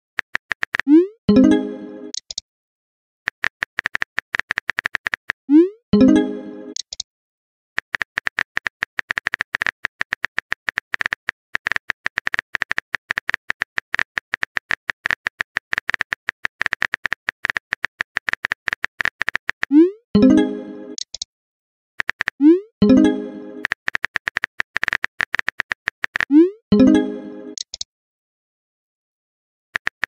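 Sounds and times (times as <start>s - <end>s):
phone keyboard typing clicks: 0.2s - 1.0s, 2.1s - 2.4s, 3.3s - 5.4s, 6.7s - 7.0s, 7.8s - 19.7s, 22.0s - 22.4s, 23.6s - 26.4s, 27.5s - 27.9s, 29.8s - 30.0s.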